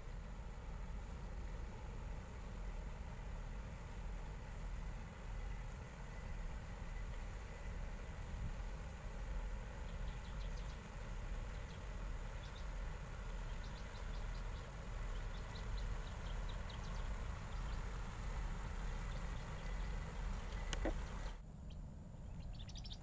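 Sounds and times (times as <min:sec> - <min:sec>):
ship engine drone: 0:00.0 - 0:22.8
bird chirps: 0:09.8 - 0:10.9, 0:11.5 - 0:12.8, 0:13.4 - 0:18.0, 0:18.9 - 0:23.0.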